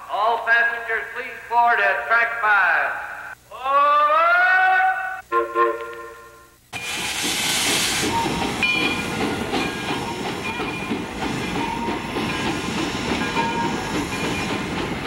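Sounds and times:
steam hiss: 6.7s - 15.0s
steam locomotive chuffing: 6.8s - 15.0s.

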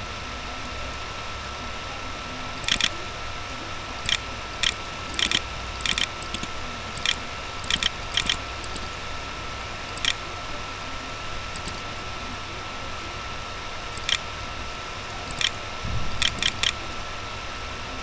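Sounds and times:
electrical hum and hiss: 0.0s - 18.0s
computer mouse clicking: 2.6s - 2.9s, 4.0s - 8.9s, 10.0s - 10.2s, 11.5s - 11.8s, 14.0s - 14.2s, 15.3s - 15.6s, 16.2s - 16.8s.

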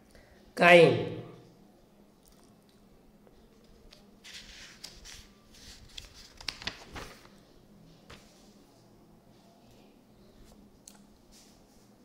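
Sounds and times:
faint paper rustling: 3.3s - 12.0s.

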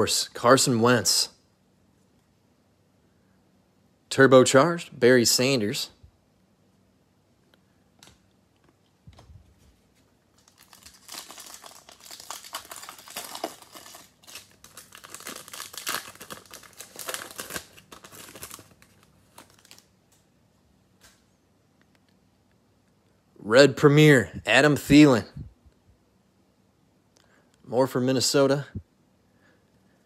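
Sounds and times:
wrapper tearing and crinkling: 10.3s - 19.9s.

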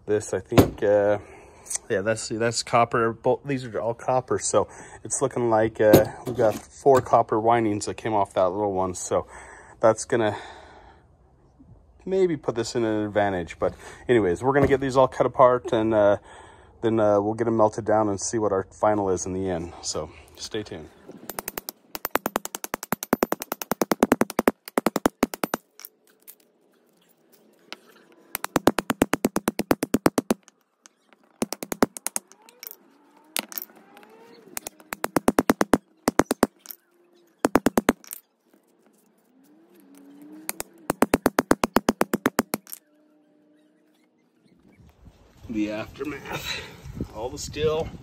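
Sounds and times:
hammer striking hatchet on metal: 34.6s - 36.8s, 40.5s - 42.8s.

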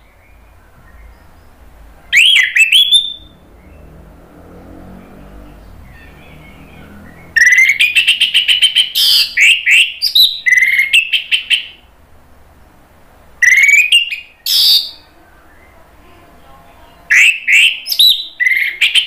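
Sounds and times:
bird singing whistled notes: 0.0s - 3.9s, 5.0s - 11.8s, 13.4s - 15.8s, 17.0s - 19.0s.

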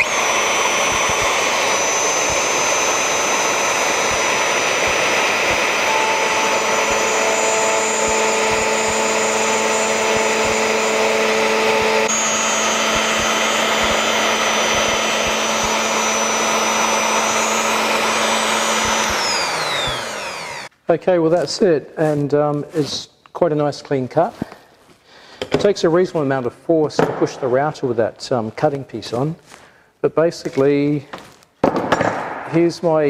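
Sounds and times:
high whine: 0.0s - 20.7s
router cutting wood: 0.0s - 20.7s.

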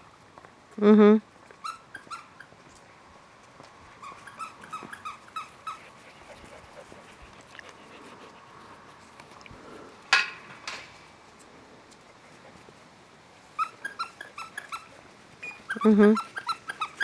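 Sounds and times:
puppies whining: 1.6s - 2.6s, 4.0s - 5.9s, 13.6s - 17.0s.

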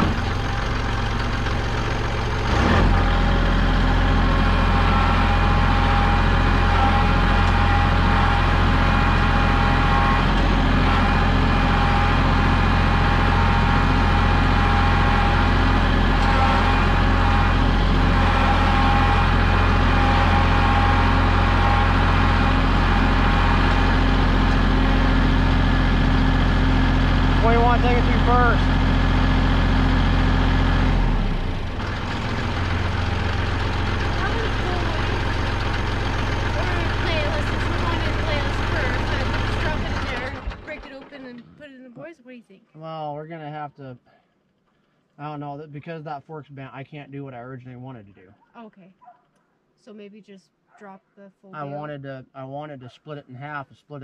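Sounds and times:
tractor diesel engine running: 0.0s - 42.1s.

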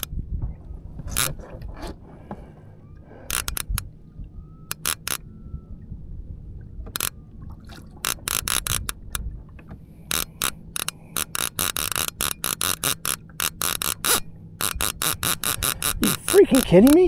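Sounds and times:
low rumble of water and wind: 0.0s - 17.0s
fishing reel clicking: 3.2s - 3.9s, 4.6s - 5.3s, 6.9s - 7.2s, 8.0s - 9.2s, 10.1s - 17.0s.

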